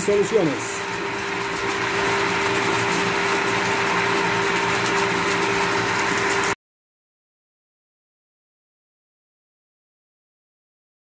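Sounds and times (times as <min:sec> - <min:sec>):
water pump humming: 0:00.0 - 0:06.6.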